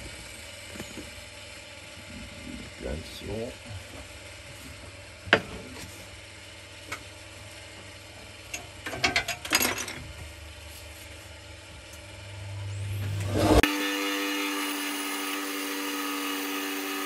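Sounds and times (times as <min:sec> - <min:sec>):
steady low hum: 0:00.0 - 0:13.7
bandsaw motor humming: 0:00.0 - 0:17.0.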